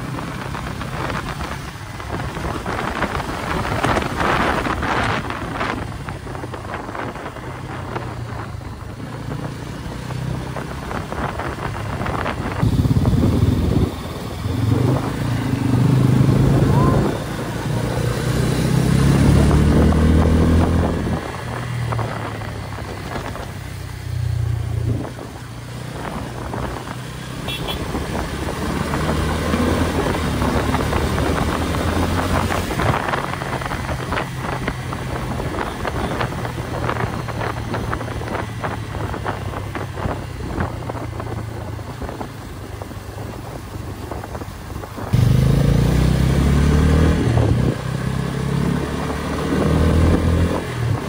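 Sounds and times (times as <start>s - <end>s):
wind buffeting microphone: 0.0s - 27.2s, 27.8s - 45.4s, 47.0s - 48.2s
motorcycle engine revving: 0.0s - 42.2s, 45.1s - 51.0s.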